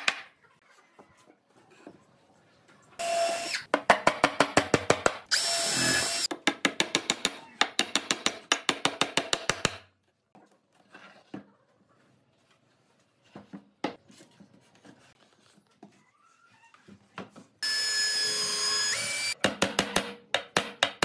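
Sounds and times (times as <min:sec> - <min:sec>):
power tool whining: 0:05.3 - 0:06.3.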